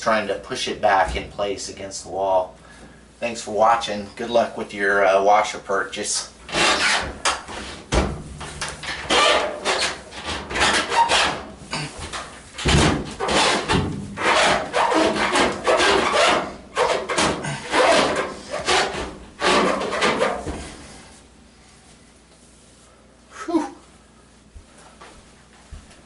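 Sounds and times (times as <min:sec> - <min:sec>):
washing machine scraping floor: 0:12.7 - 0:21.1.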